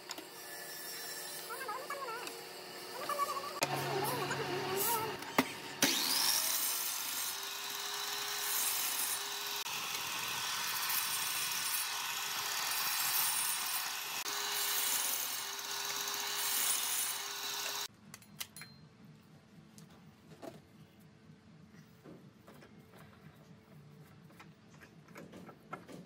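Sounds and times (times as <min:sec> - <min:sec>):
miter saw cutting wood: 0:00.1 - 0:17.9.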